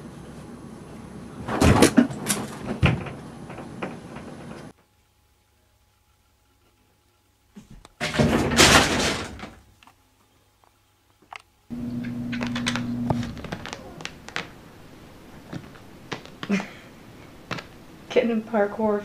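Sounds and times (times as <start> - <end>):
loud thump with clattering: 8.0 - 9.6
low hum: 11.7 - 18.1.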